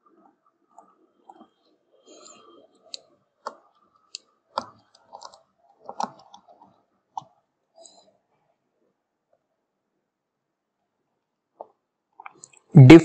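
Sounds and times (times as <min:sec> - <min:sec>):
stylus tapping and clicking: 0:02.2 - 0:07.4.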